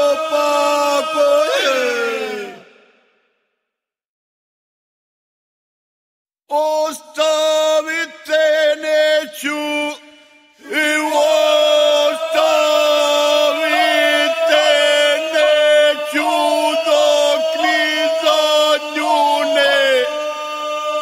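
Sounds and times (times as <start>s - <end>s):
polyphonic folk singing: 10.6s - 20.5s.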